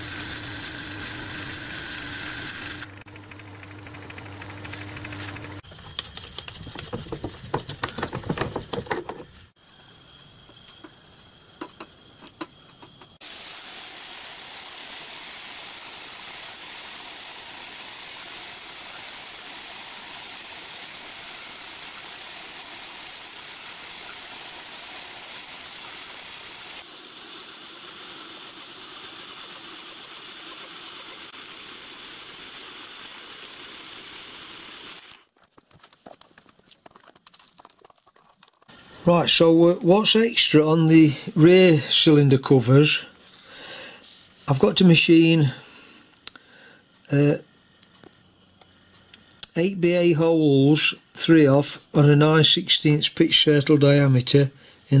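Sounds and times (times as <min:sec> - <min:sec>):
pillar drill whining: 0:00.0 - 0:06.9, 0:13.2 - 0:26.9, 0:27.8 - 0:35.3.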